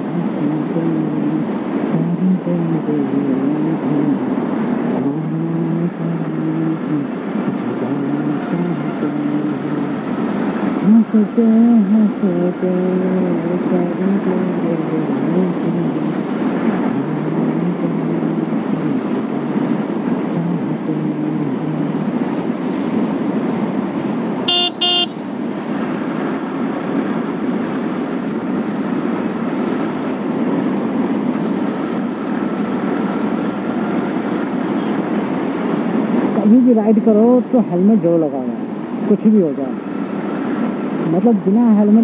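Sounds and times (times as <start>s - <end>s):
wind and road noise: 0.0s - 42.0s
vehicle horn beeps: 24.4s - 25.2s.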